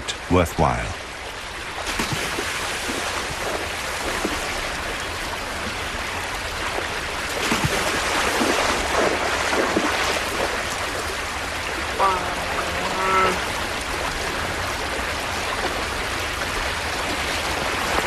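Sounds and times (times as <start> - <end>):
creek water rushing: 0.0 - 18.0
heavy splashing in water: 6.8 - 18.0.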